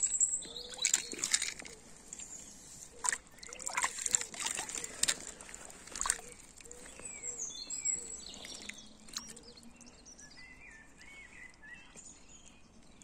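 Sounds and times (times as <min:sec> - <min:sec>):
high chirping calls: 0:00.0 - 0:01.5
birds singing: 0:00.0 - 0:13.0
water splashing: 0:00.5 - 0:07.1.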